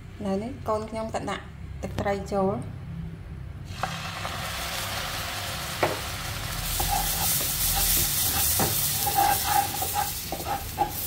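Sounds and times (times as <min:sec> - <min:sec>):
egg yolk sizzling in a wok: 0:03.7 - 0:11.0
plastic spatula scraping pan: 0:06.8 - 0:11.0.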